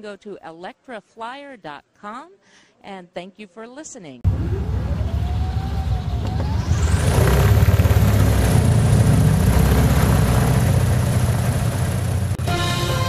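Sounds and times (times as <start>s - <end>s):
electric motor and propeller: 4.3s - 12.4s.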